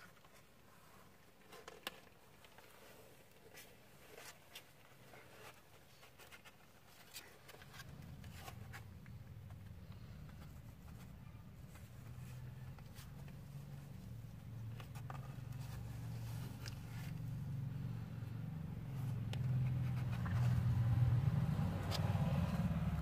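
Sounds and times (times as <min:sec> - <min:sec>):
kitten claws scratching paper: 0:19.2 - 0:22.6.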